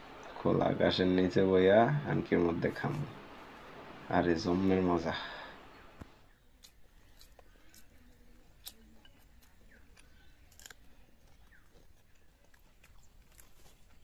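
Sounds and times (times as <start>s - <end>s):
person chewing: 6.3s - 14.0s.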